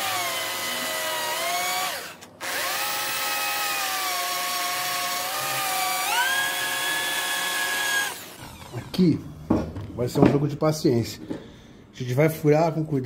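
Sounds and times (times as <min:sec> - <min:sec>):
electric drill boring into steel: 0:00.0 - 0:09.0.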